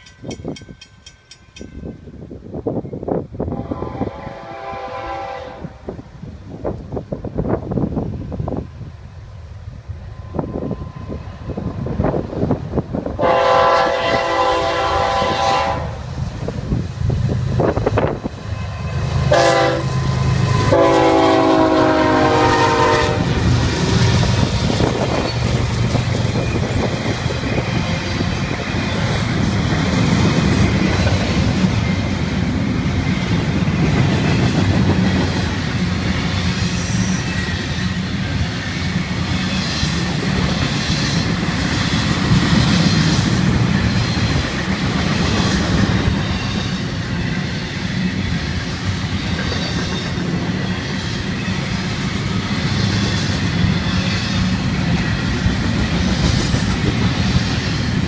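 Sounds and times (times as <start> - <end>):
locomotive horn blasts: 3.5 - 5.8, 13.2 - 16.0, 19.3 - 23.4
train wheel clatter on rails: 23.2 - 58.0.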